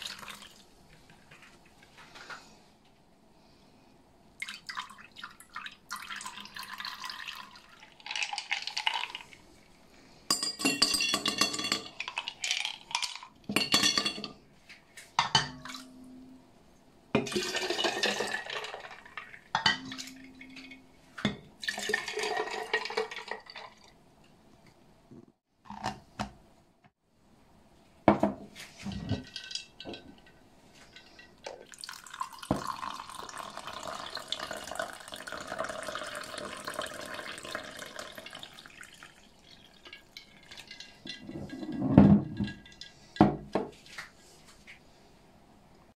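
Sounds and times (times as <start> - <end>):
juice pouring into glass jar: 4.4 - 9.6, 17.3 - 19.4, 21.6 - 24.0, 31.5 - 41.7
glass clinking: 10.3 - 12.0, 13.5 - 14.4, 19.5 - 21.4.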